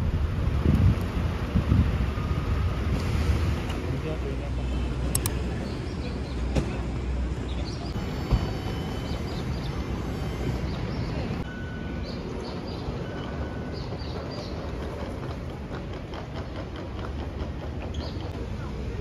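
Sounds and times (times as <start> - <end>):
low street rumble: 0.0 - 19.0
bird chirps: 7.5 - 14.8.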